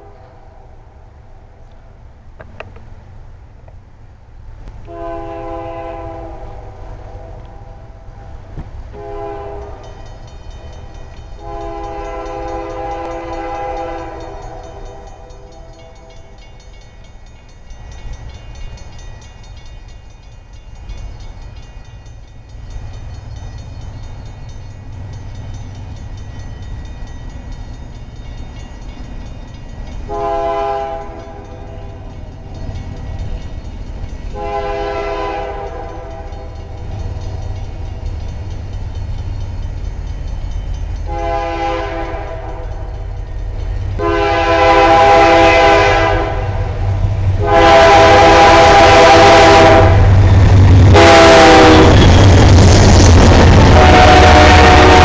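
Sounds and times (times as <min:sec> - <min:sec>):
distant train air horn: 0:00.0 - 0:00.8, 0:04.8 - 0:08.3, 0:08.9 - 0:10.0, 0:11.4 - 0:16.4, 0:30.1 - 0:32.1, 0:34.3 - 0:36.7, 0:41.0 - 0:43.2, 0:44.0 - 0:52.6, 0:53.4 - 0:55.0
low train rumble: 0:00.0 - 0:55.0.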